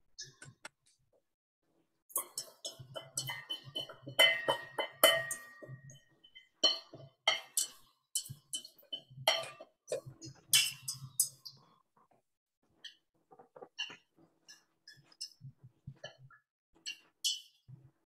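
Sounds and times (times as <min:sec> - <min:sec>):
utensils clinking on dishes: 0:02.1 - 0:06.0, 0:06.6 - 0:11.3
utensil scraping dishes: 0:02.2 - 0:05.8.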